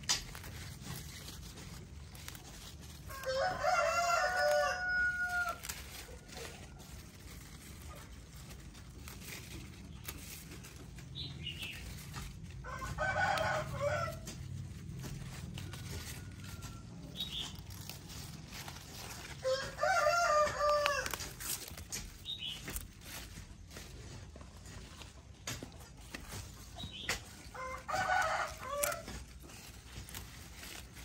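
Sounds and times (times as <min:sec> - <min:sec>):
rooster crowing: 0:03.1 - 0:06.1, 0:12.6 - 0:14.4, 0:15.6 - 0:17.1, 0:19.3 - 0:21.2, 0:27.5 - 0:29.1.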